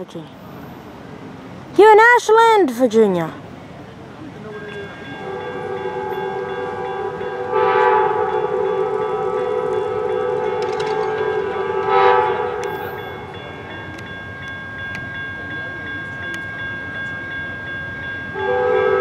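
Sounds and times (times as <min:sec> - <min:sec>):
train air horn blasts: 0:04.5 - 0:13.3, 0:18.3 - 0:19.0.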